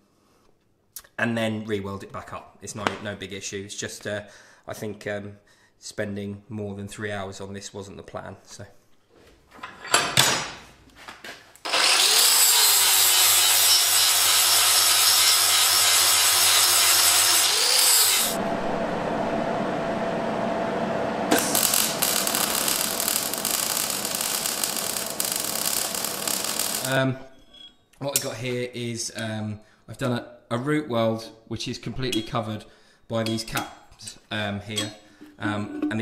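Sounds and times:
arc welder crackling: 11.6s - 19.4s, 21.0s - 27.0s
angle grinder grinding steel: 11.7s - 19.1s, 21.3s - 27.0s.

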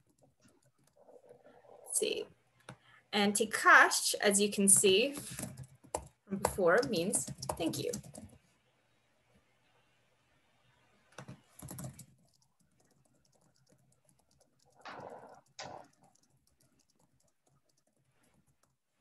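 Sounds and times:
typing on keyboard: 4.7s - 8.4s, 11.1s - 18.8s.

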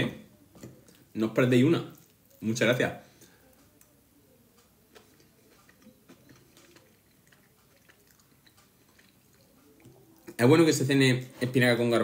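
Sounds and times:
person chewing: 1.9s - 2.4s, 4.6s - 10.4s.

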